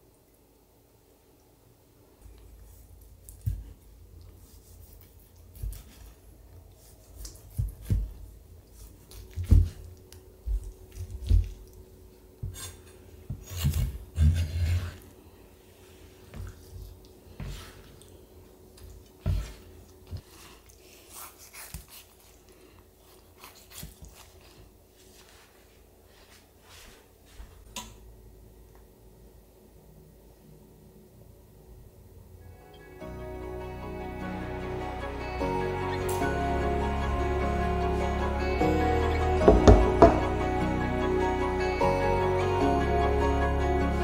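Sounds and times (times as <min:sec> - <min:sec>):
knife scraping and rubbing: 0:12.4 - 0:15.1
knife thudding on cutting board: 0:39.4 - 0:40.2.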